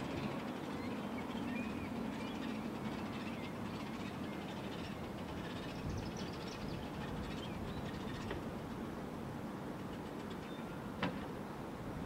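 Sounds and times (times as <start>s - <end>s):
bird calls: 0.0s - 8.4s
low outdoor rumble: 0.0s - 12.0s.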